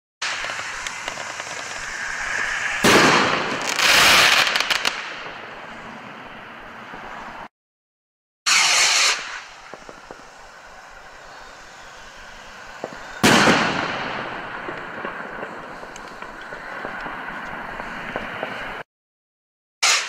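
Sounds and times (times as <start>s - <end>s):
firework bang: 0.2s - 5.6s, 8.5s - 11.2s, 12.7s - 17.2s
firework crackling burst: 0.2s - 5.9s, 8.5s - 18.8s
firework rocket hissing: 0.2s - 6.0s, 8.5s - 18.8s.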